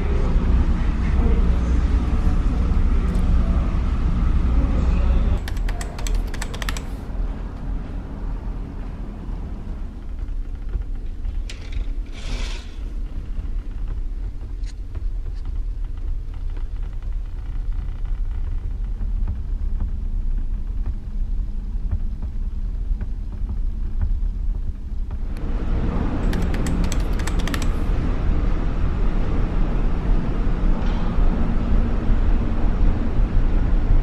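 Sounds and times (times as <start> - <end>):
quick clicks: 5.4 - 7.1, 26.2 - 27.9.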